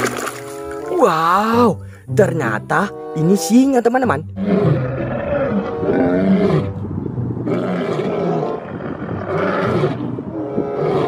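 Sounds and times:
lions roaring: 0:04.4 - 0:11.0.

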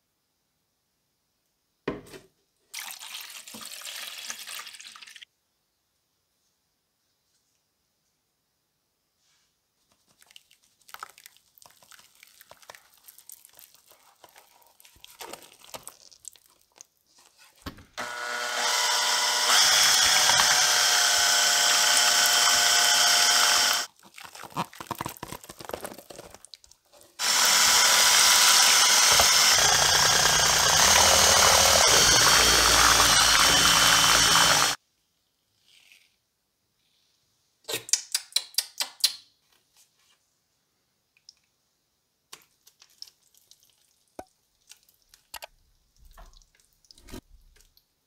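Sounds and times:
power drill mixing plaster: 0:18.0 - 0:25.0, 0:27.2 - 0:34.8
powder crackling on water: 0:23.9 - 0:26.9.

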